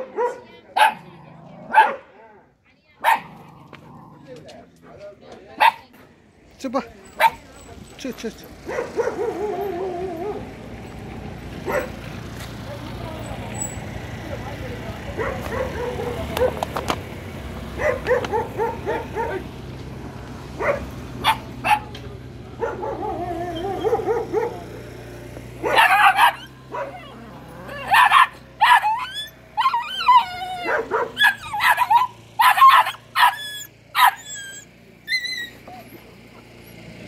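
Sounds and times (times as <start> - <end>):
dogs barking loudly: 0.0 - 2.2, 3.0 - 4.2, 7.2 - 7.5, 8.5 - 12.1, 15.1 - 19.7, 20.4 - 34.8
dogs yapping: 8.6 - 10.6, 11.6 - 12.0, 15.2 - 16.8, 17.7 - 19.5, 20.6 - 22.0, 22.6 - 24.7, 25.6 - 36.7
dog whining: 22.8 - 24.6, 25.7 - 36.0.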